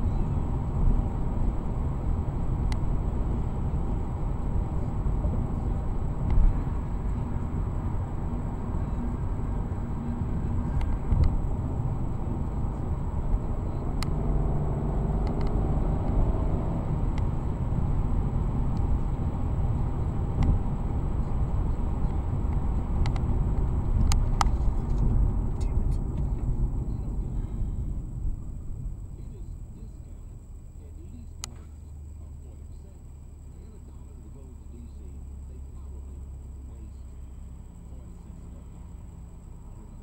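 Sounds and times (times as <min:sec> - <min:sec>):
road and tyre rumble in car: 0:00.0 - 0:40.0.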